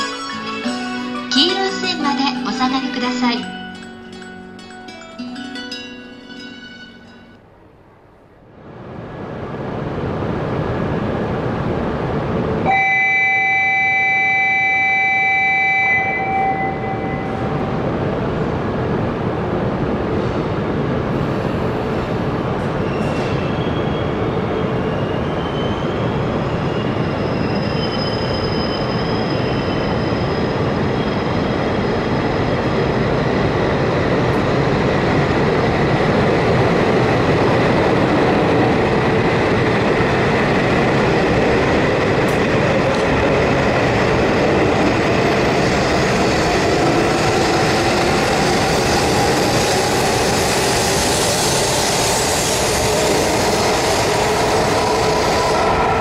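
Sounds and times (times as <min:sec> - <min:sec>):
train running noise: 0:00.0 - 0:56.0.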